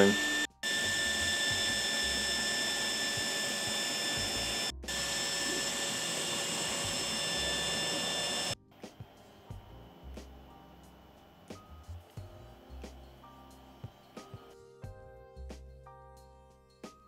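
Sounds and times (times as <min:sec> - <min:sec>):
printer motors moving: 0:00.0 - 0:08.6
cooling fans whirring: 0:00.0 - 0:13.1.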